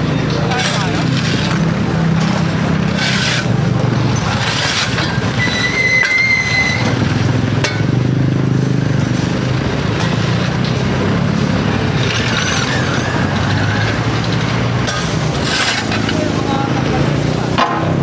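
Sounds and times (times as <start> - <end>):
diesel engine idling: 0.0 - 17.6
shovels scraping concrete: 0.1 - 7.9, 9.3 - 17.8
high squeal: 4.8 - 7.0.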